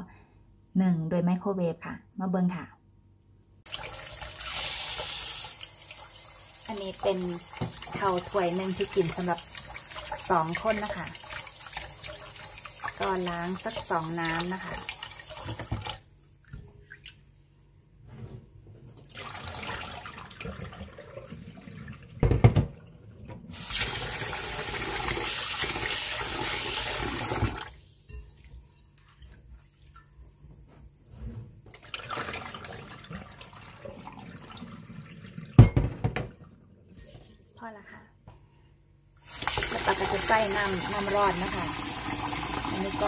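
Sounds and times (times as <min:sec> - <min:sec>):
tap water running into bowl: 0:03.7 - 0:16.0, 0:39.2 - 0:43.0.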